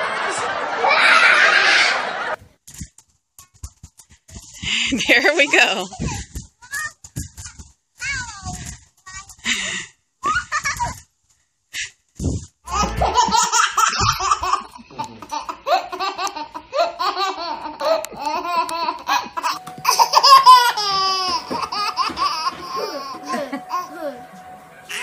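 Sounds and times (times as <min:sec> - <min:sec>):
steady tone: 0:12.7 - 0:13.5, 0:19.5 - 0:25.0
baby giggling: 0:12.7 - 0:24.2.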